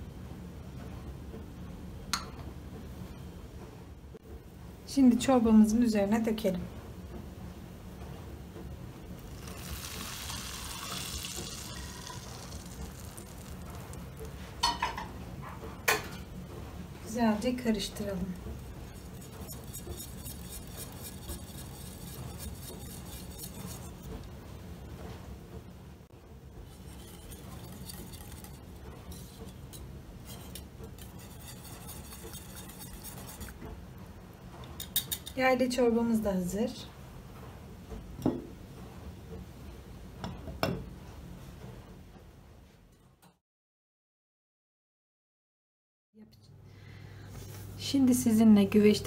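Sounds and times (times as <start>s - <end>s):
hot butter sizzling and foaming: 9.1s - 14.7s, 17.4s - 24.3s, 26.6s - 33.7s
whisk clinking and scraping metal: 17.7s - 24.3s, 26.6s - 33.8s, 34.7s - 35.4s.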